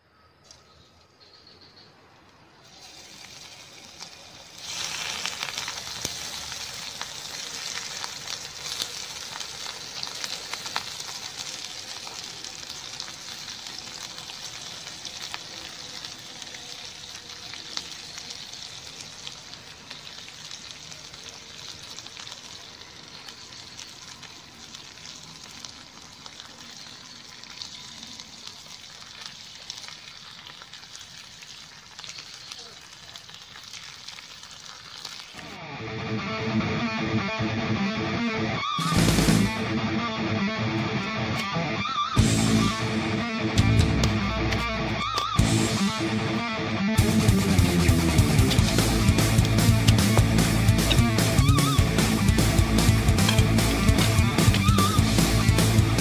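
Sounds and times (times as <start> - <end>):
beef sizzling in hot oil: 2.6 - 35.6, 41.4 - 56.0.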